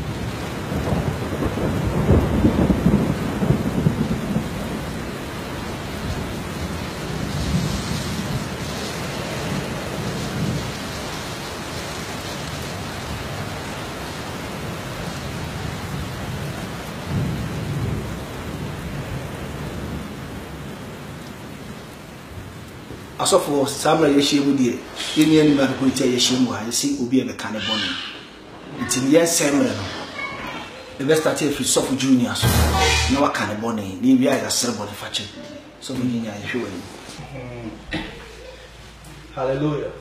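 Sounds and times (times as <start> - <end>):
thunder rolling: 0.0 - 13.6, 15.3 - 20.7, 31.6 - 33.6
rain falling: 0.0 - 40.0.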